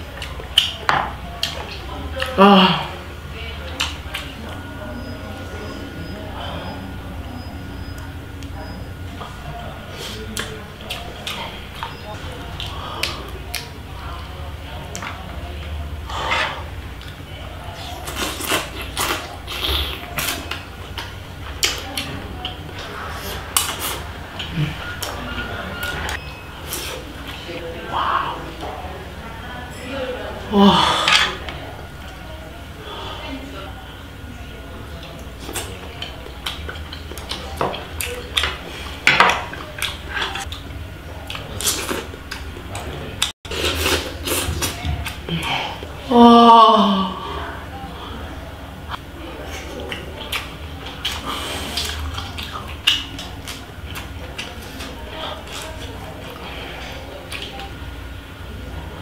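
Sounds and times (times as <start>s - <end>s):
wet mouth eating noises: 17.8s - 25.2s, 35.0s - 45.9s, 48.9s - 57.8s.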